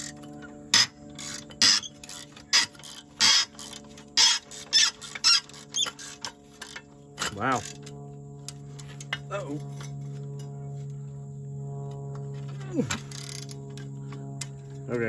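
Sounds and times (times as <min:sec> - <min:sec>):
hand ratchet clicking: 0:00.0 - 0:09.2.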